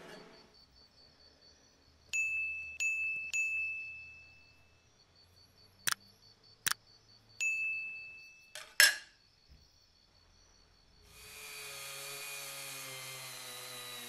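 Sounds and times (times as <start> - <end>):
bell-like dings: 2.1 - 4.8, 7.4 - 8.9.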